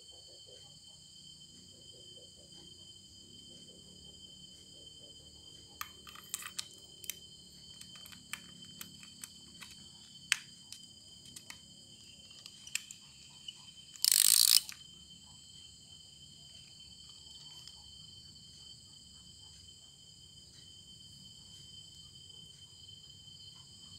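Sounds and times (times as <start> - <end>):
small plastic and metal clicks: 5.8 - 11.6, 12.3 - 14.9.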